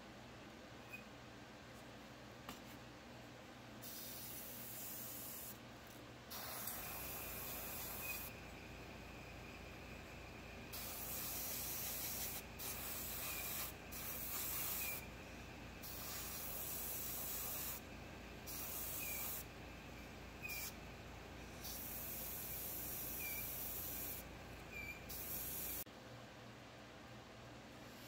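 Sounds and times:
airbrush hissing in bursts: 0:03.8 - 0:05.6, 0:06.3 - 0:08.4, 0:10.7 - 0:15.1, 0:15.8 - 0:19.5, 0:20.4 - 0:20.8, 0:21.5 - 0:25.9.

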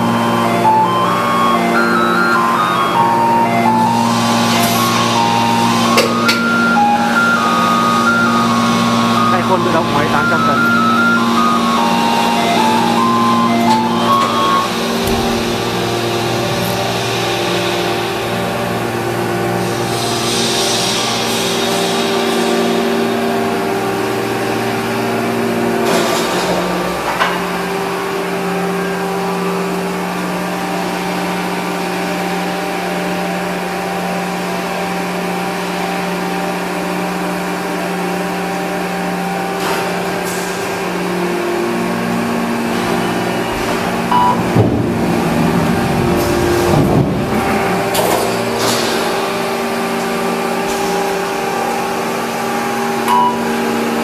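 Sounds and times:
stamping press machine hum: 0:02.3 - 0:54.0
metallic clanks and squeals: 0:10.3 - 0:17.0.

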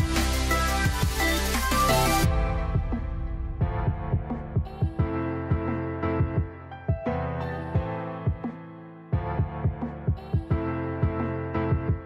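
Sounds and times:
sustained chords music: 0:00.0 - 0:06.7
soft low beat: 0:02.2 - 0:07.0.

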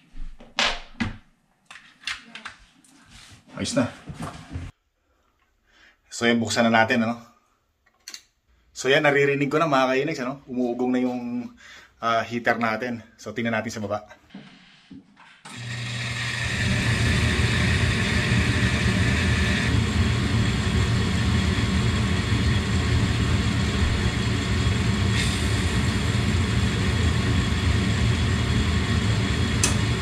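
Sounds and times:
furnace blower humming: 0:15.5 - 0:30.0
burner ignition click: 0:29.4 - 0:30.0.

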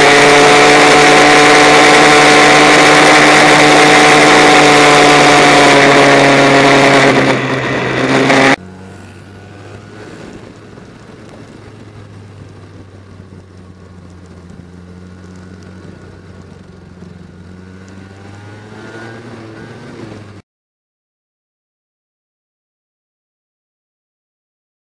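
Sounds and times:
loud go-kart engine: 0:00.0 - 0:20.4
quiet kart engine hum: 0:00.0 - 0:20.4.

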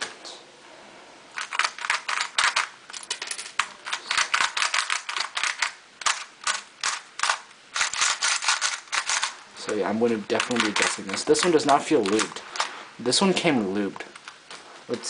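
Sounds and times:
puzzle cube layers clicking: 0:01.4 - 0:12.7.

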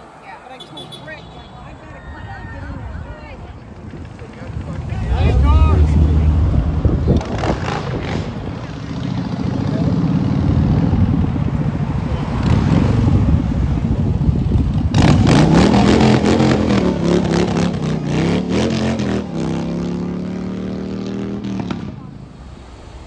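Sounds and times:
passing traffic: 0:00.0 - 0:23.0
motorcycle engine revving past: 0:04.7 - 0:11.3, 0:14.4 - 0:22.0.

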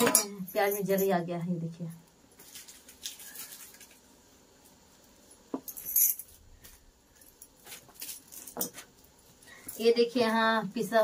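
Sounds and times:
onion skin crisp rustle: 0:02.4 - 0:04.1.

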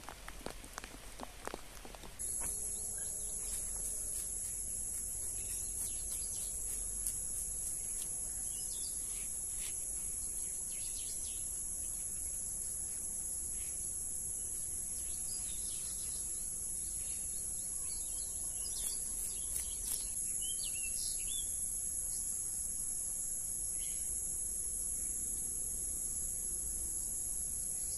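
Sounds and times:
crickets trilling: 0:00.0 - 0:27.9
bird chirps: 0:02.2 - 0:04.0, 0:05.2 - 0:06.9, 0:07.8 - 0:09.4, 0:15.0 - 0:21.6.

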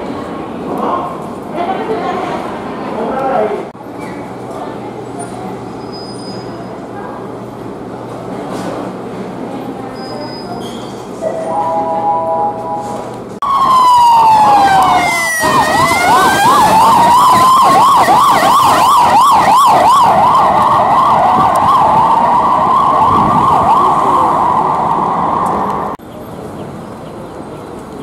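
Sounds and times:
three-tone chord: 0:11.3 - 0:13.1
emergency siren wailing: 0:11.3 - 0:26.0.

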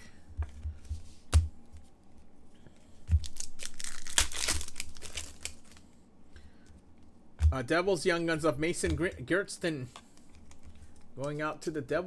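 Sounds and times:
foil wrapper crinkling: 0:03.1 - 0:05.8.

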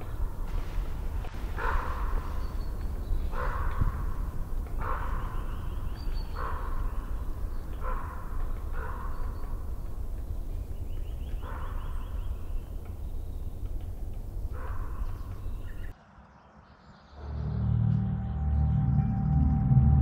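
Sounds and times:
steady low rumble: 0:00.0 - 0:10.9
bird harsh raspy calls: 0:00.0 - 0:13.7, 0:14.4 - 0:15.9.

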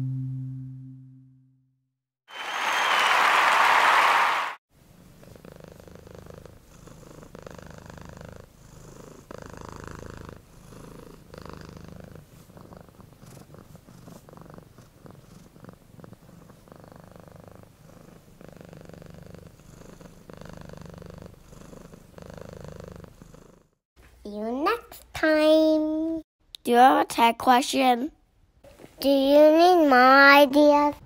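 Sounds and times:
cat purring: 0:05.0 - 0:23.8.

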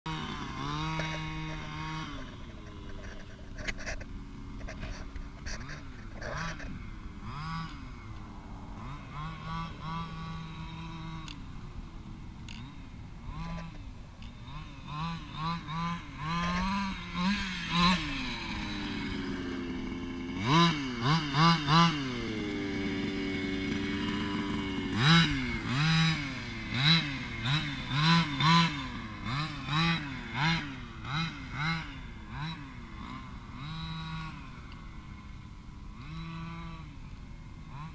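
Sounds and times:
two-stroke engine revving: 0:00.1 - 0:37.9.

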